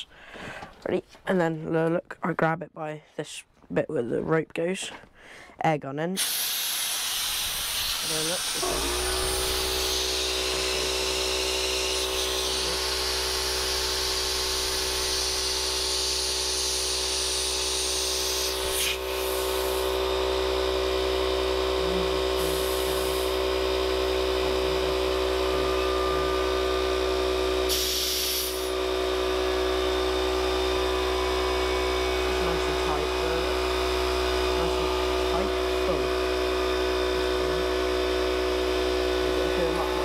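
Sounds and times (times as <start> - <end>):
compressed air hissing: 6.2 - 20.1, 22.0 - 25.2, 26.5 - 34.7
air compressor motor humming: 6.2 - 40.0.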